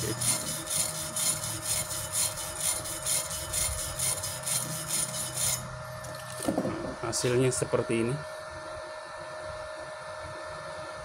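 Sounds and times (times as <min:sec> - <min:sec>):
wire brush scrubbing metal: 0:00.0 - 0:05.7.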